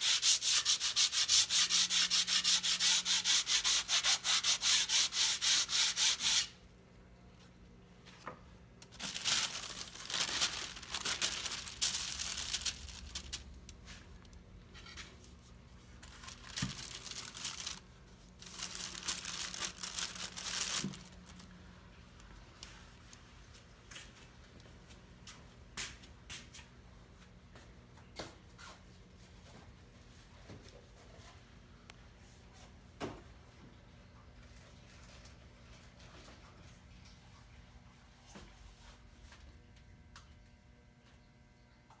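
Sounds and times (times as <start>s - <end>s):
hand sanding wood: 0.0s - 6.5s
plastic sheeting crinkling: 8.9s - 14.3s, 15.9s - 21.5s.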